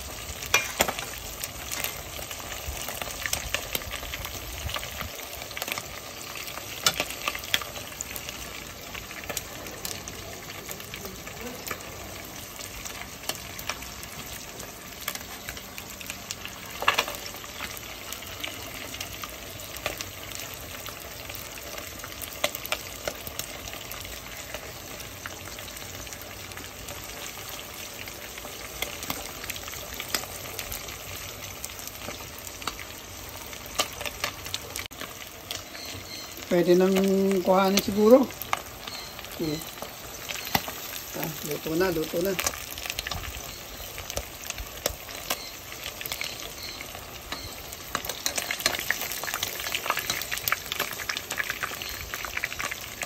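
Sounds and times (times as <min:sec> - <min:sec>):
fish deep-frying in oil: 0:00.0 - 0:53.0
oil popping and crackling: 0:00.0 - 0:53.0.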